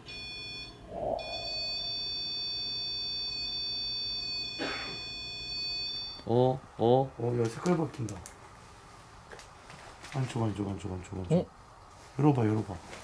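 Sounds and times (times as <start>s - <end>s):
high-pitched electronic alarm tone: 0.2s - 6.2s.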